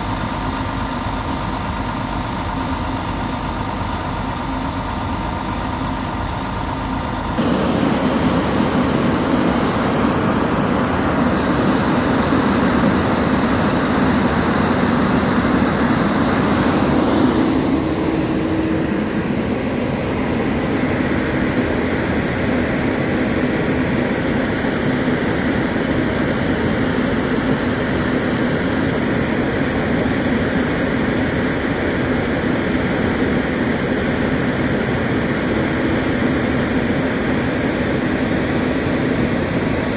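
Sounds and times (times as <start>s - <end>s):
diesel engine running: 0.0s - 35.1s.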